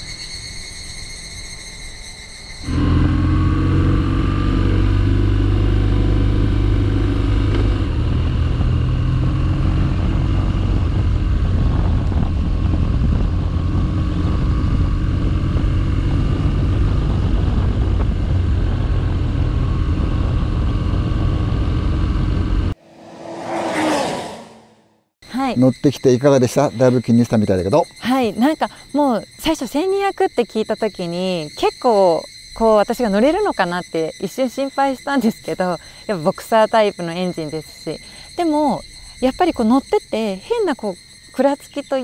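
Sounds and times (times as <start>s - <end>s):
motorcycle engine running: 2.7s - 24.8s.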